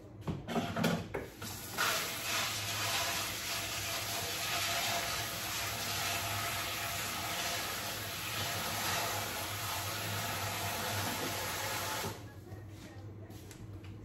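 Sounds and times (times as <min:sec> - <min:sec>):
tap water running: 0:01.2 - 0:12.2.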